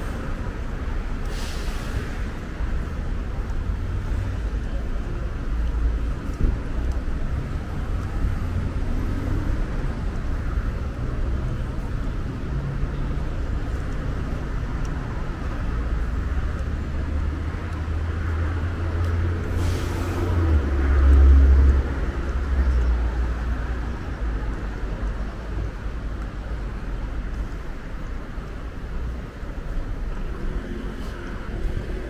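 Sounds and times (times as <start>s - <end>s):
bus engine rumbling: 0.0s - 32.0s
air hiss: 1.2s - 2.3s.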